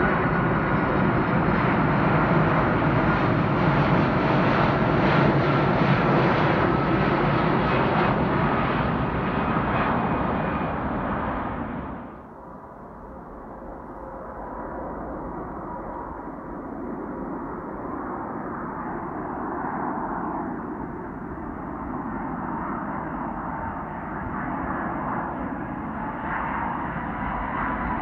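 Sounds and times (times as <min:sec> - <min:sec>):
jet airliner engines: 0:00.0 - 0:28.0.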